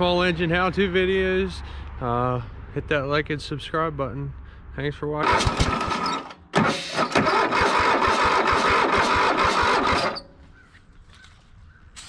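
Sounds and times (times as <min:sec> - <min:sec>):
mower engine starter cranking: 0:05.2 - 0:10.5.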